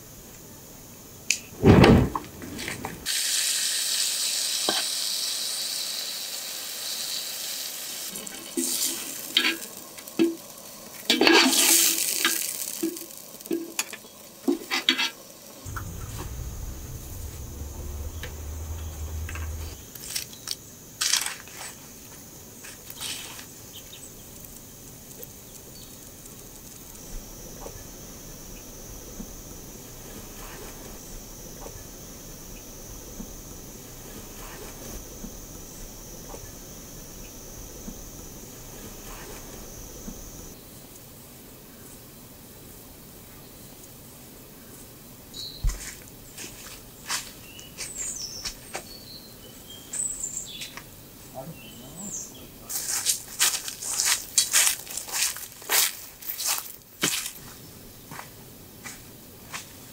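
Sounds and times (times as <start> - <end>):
steady hiss: 0.0 - 20.2, 21.7 - 45.2.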